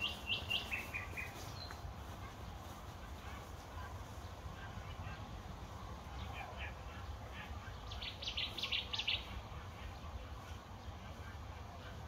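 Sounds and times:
bird chirping: 0:00.0 - 0:02.4, 0:06.1 - 0:11.4.

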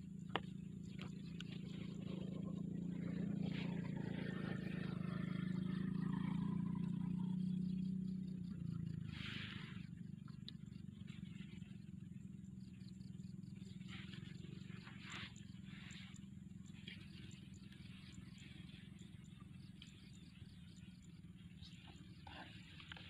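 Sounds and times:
light high-pitched ticks: 0:09.7 - 0:11.9.

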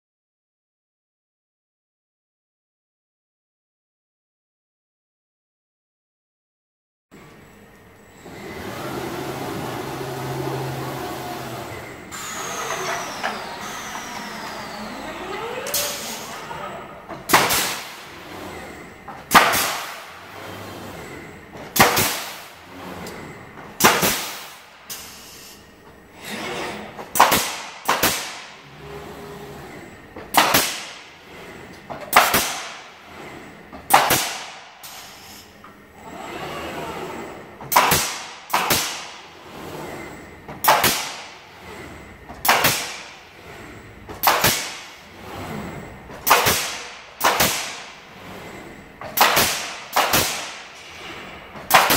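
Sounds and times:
pneumatic nailers firing into wood: 0:08.6 - 0:21.0, 0:21.6 - 0:23.2, 0:23.8 - 0:25.6, 0:26.7 - 0:28.9, 0:30.2 - 0:31.2, 0:31.9 - 0:35.5, 0:36.1 - 0:51.9.

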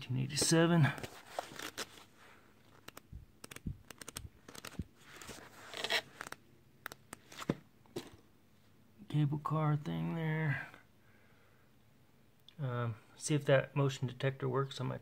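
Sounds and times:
book pages rustling: 0:00.4 - 0:08.2
sharp clicks and taps: 0:02.8 - 0:04.8.

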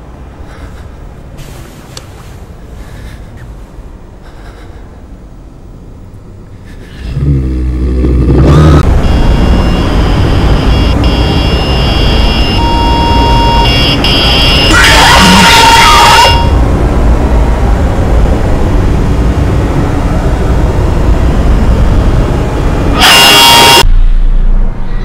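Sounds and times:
harsh drone with ringing tones: 0:07.9 - 0:25.0
shrill wavering screech: 0:14.7 - 0:16.5.

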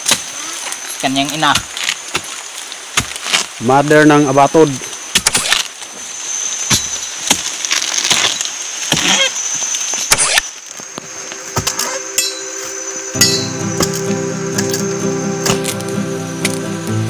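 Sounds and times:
background music: 0:11.0 - 0:17.0.

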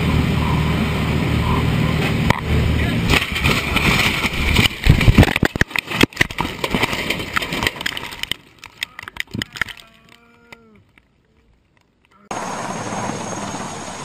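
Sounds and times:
aircraft engine and wind noise: 0:00.0 - 0:05.5, 0:12.2 - 0:14.0
clatter of impacts and cracks: 0:03.0 - 0:12.2.

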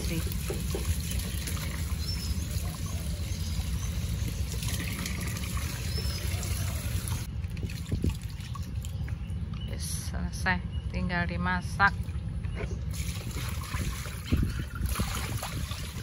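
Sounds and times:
hose water running into bucket: 0:00.0 - 0:08.6, 0:12.9 - 0:16.0.

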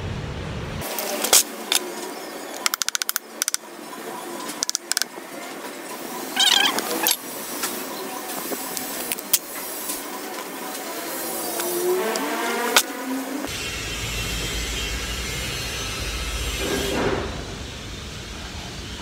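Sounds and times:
wavering high-pitched squeal: 0:05.2 - 0:16.6.

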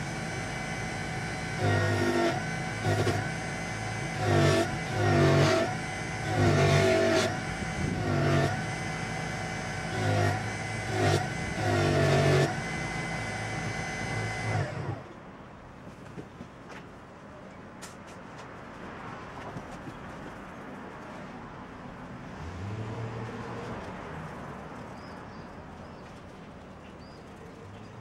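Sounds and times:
polishing motor spinning: 0:00.0 - 0:15.1.

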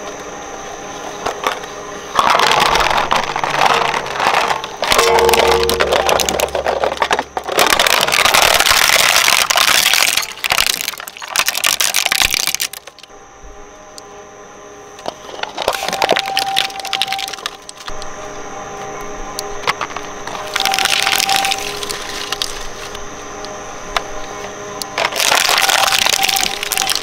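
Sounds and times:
shredder crunching plastic: 0:01.2 - 0:13.1, 0:15.0 - 0:18.1, 0:19.4 - 0:23.4, 0:24.8 - 0:27.0
fragments clicking: 0:01.3 - 0:13.1, 0:15.0 - 0:18.1, 0:19.6 - 0:23.0, 0:24.8 - 0:27.0.

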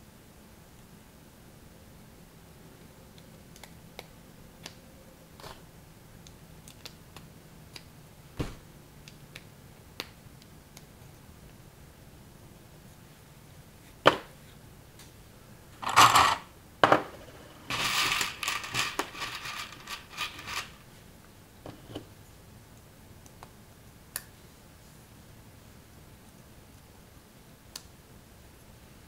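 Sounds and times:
plastic bricks clattering: 0:15.8 - 0:20.8
rustling and scraping of bricks: 0:17.1 - 0:20.8
plastic bricks clicking together: 0:17.7 - 0:20.8.

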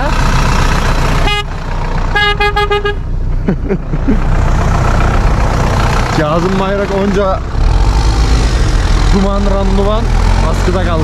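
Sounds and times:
tractor engine running: 0:00.0 - 0:11.0
horn tooting: 0:01.2 - 0:03.1.

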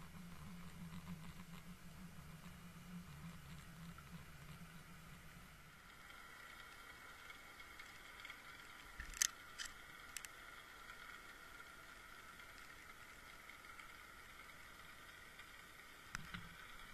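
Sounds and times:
underwater hum with high whine: 0:00.0 - 0:16.9
sharp clicks: 0:09.0 - 0:10.4.

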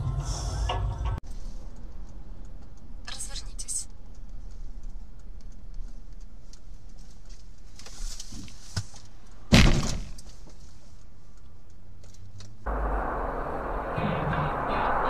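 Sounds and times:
engine and road rumble: 0:00.0 - 0:15.0
car collision bang: 0:09.5 - 0:10.2
loud noisy rumble: 0:12.7 - 0:15.0.

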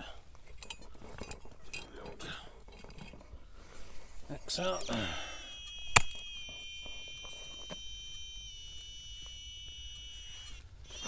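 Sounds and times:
metal detector electronic tone: 0:04.4 - 0:11.0.

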